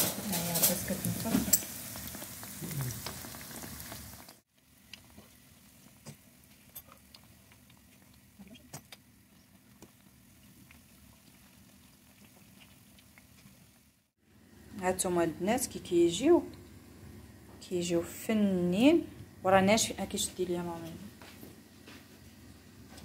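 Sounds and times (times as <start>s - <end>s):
dough sizzling in hot oil: 0.0s - 14.2s.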